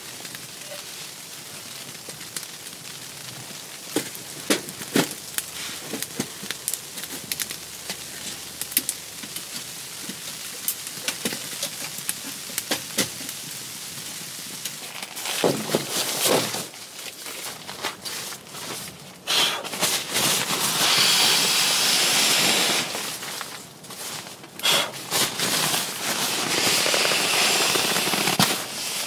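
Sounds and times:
fire hissing: 0:00.0 - 0:29.0
wood fire crackling: 0:00.0 - 0:29.0
rustling: 0:14.6 - 0:29.0.

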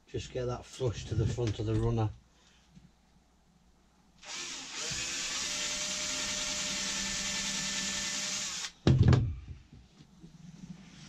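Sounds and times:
cordless drill running: 0:04.2 - 0:08.8.

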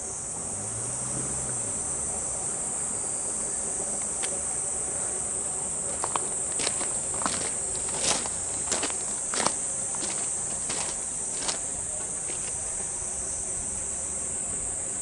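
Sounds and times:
cicadas droning: 0:00.0 - 0:15.0
footsteps on gravel: 0:05.8 - 0:12.6.

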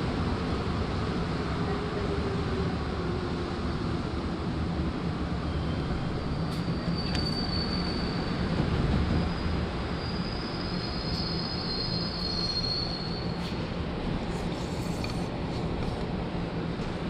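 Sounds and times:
subway car rumble and hum: 0:00.0 - 0:17.0
high steady squeal: 0:05.4 - 0:08.6, 0:09.2 - 0:13.6.

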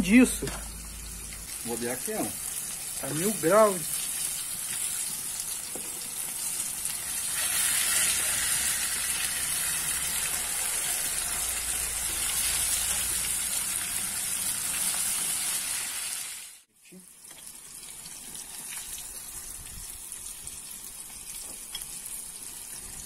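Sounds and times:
fish frying in hot oil: 0:00.1 - 0:23.0.

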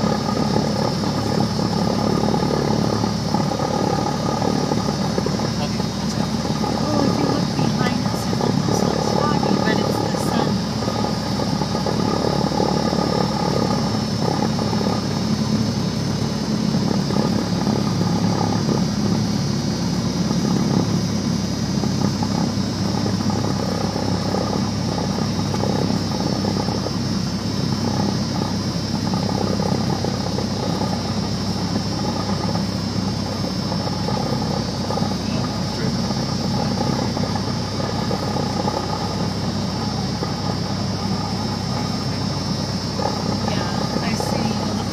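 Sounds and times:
high-pitched whine: 0:00.0 - 0:44.9
propeller airplane engine running: 0:00.0 - 0:44.9.

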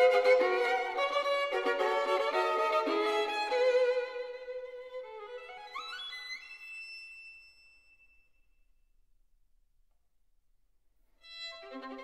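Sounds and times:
violin playing: 0:00.0 - 0:07.2, 0:11.2 - 0:12.0.

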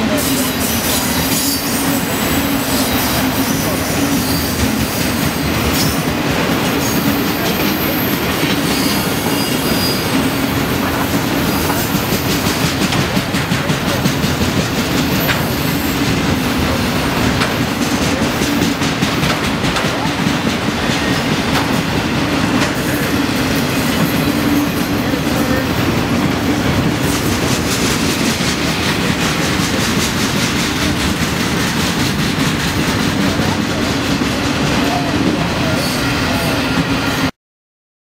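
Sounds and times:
wheels clacking over rail joints: 0:00.0 - 0:35.0
steel wheels rumbling on rails: 0:00.0 - 0:37.3.

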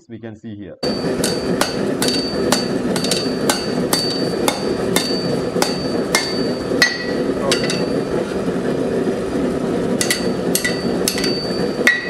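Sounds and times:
hammer striking steel on anvil: 0:00.8 - 0:08.1, 0:10.0 - 0:12.0
steady high metallic ring: 0:00.8 - 0:08.4, 0:10.0 - 0:12.0.

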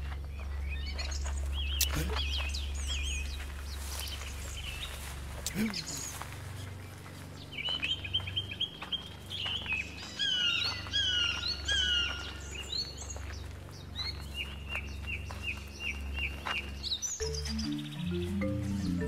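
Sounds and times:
low steady hum: 0:00.0 - 0:09.4
birds chirping: 0:00.0 - 0:19.0.

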